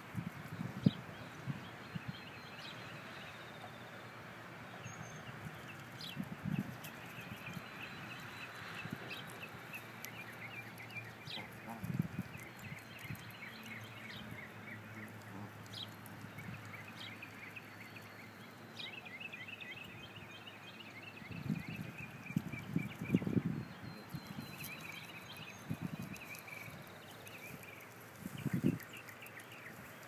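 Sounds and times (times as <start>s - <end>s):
small birds chirping: 0.2s - 30.0s
goose plucking grass clicks: 8.7s - 18.0s, 24.6s - 30.0s.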